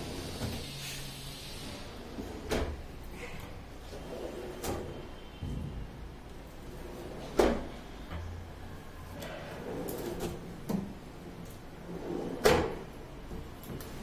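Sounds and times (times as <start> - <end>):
drawer sliding on runners: 9.2 - 10.9, 11.8 - 12.9.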